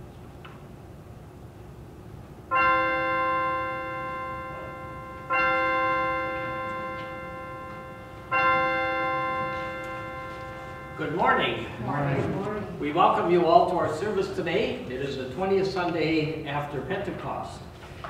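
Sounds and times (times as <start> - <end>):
church bell tolling: 2.5 - 14.8.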